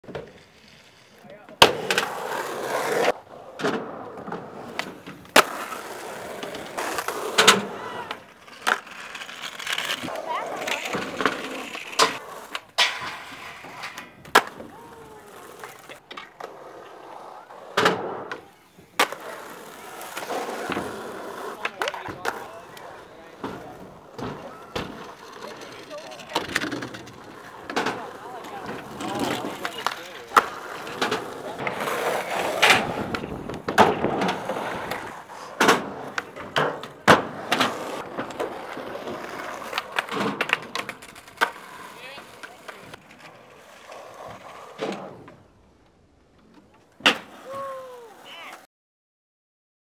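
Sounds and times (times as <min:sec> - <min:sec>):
skateboard rolling on concrete: 0:00.0 - 0:48.7
skateboard clacks and slams: 0:01.5 - 0:16.9, 0:17.6 - 0:45.4.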